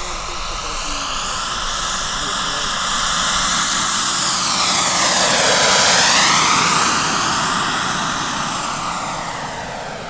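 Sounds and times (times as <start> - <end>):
helicopter rotor rushing: 0.0 - 10.0
model helicopter turbine whine: 0.0 - 10.0.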